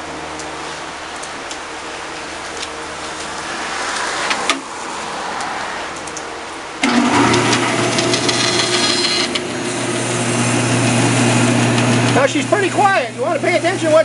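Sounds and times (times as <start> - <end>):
bandsaw motor humming: 6.8 - 14.0.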